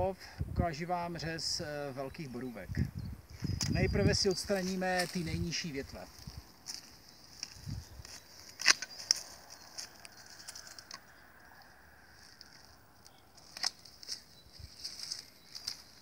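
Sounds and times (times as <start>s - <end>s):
loppers snapping branch: 8.5s - 9.3s, 13.4s - 14.2s.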